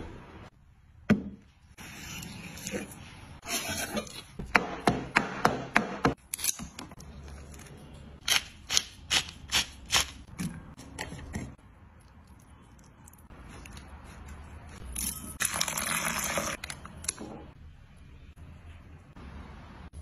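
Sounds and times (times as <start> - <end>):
sharp knocks in food preparation: 4.4 - 6.2.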